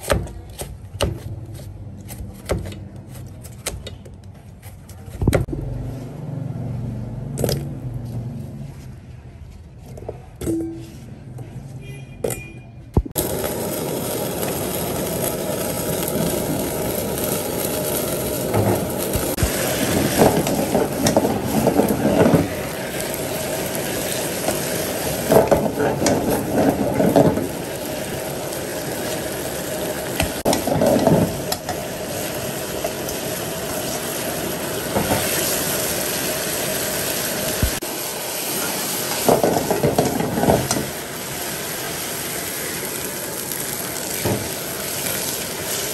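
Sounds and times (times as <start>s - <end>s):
meat sizzling in a pan: 13.2s - 45.9s
stirring in a pan: 16.0s - 37.9s.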